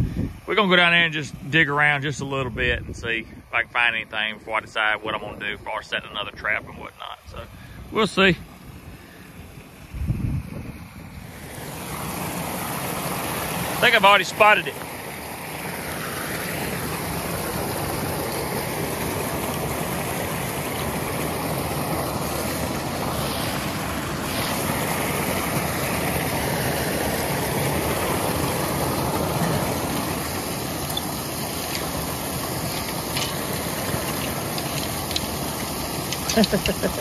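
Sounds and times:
water rushing over a dam: 11.2s - 37.0s.

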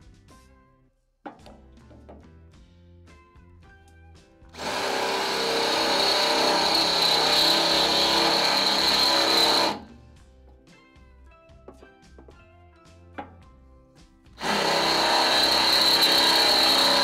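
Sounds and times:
background music: 0.0s - 17.0s
drill boring through steel: 4.6s - 9.9s, 14.4s - 17.0s.

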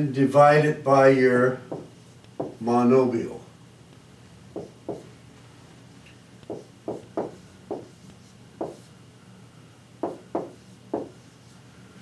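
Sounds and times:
marker writing on a whiteboard: 1.7s - 2.6s, 4.6s - 5.1s, 6.4s - 8.9s, 10.0s - 11.5s.

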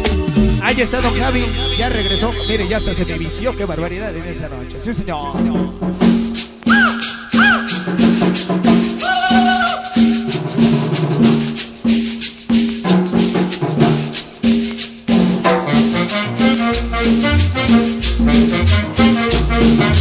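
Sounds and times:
latin dance music: 0.0s - 20.0s
swooping electronic tones: 1.0s - 5.8s, 6.6s - 10.5s.

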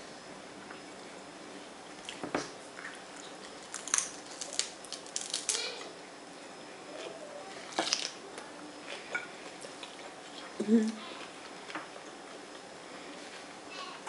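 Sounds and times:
crunching lettuce: 2.8s - 5.9s, 7.0s - 8.2s.

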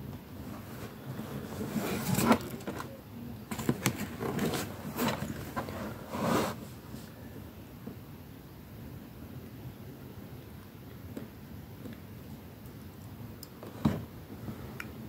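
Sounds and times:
cardboard box and plastic rustling: 0.4s - 7.0s.

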